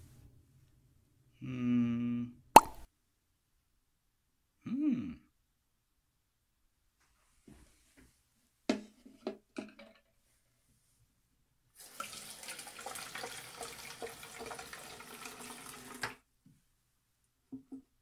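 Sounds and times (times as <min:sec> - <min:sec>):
faucet running into sink: 0:11.8 - 0:16.2.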